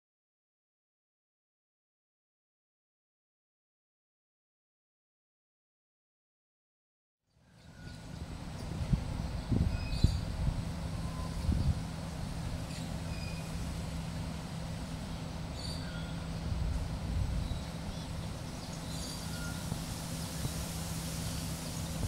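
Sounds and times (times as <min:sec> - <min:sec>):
low mechanical hum: 0:07.3 - 0:22.0
faint bird chirps: 0:12.7 - 0:13.6, 0:15.5 - 0:16.5, 0:17.4 - 0:19.8.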